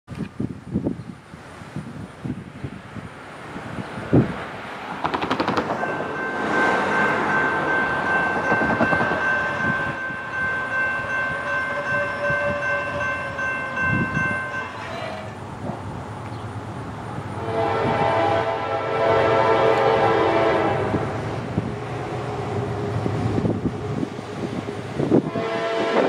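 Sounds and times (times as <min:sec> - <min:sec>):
locomotive air horn chord: 0:10.7 - 0:13.5, 0:17.4 - 0:21.2, 0:25.2 - 0:26.0.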